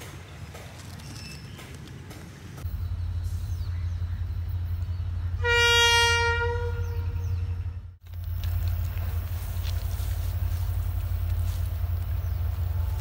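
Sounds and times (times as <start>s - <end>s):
train horn blast: 5.3s - 7.8s.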